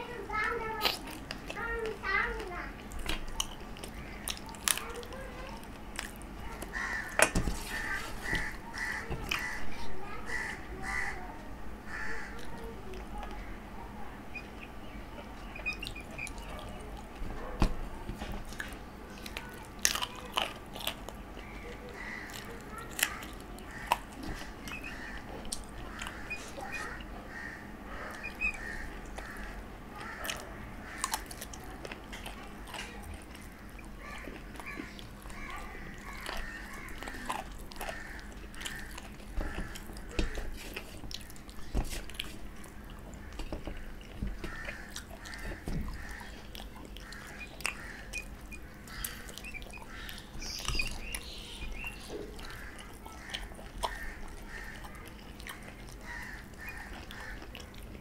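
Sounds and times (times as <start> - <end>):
person chewing and smacking: 0.4 - 9.6, 14.3 - 58.0.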